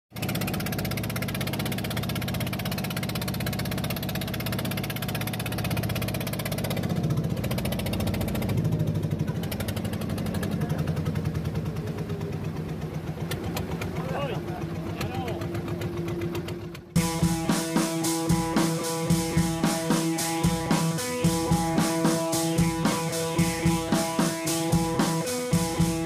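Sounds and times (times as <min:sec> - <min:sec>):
boat engine pulsing: 0:00.1 - 0:26.0.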